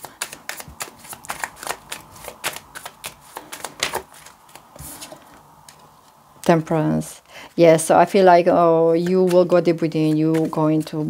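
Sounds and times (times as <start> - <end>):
cards being shuffled: 0.0 - 5.9, 8.9 - 11.0.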